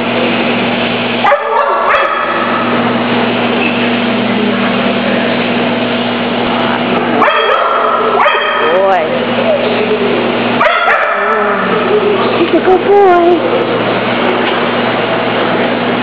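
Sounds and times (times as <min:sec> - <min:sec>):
low hum: 0:00.0 - 0:16.0
dogs barking: 0:01.2 - 0:02.9, 0:07.2 - 0:09.1, 0:10.3 - 0:12.4.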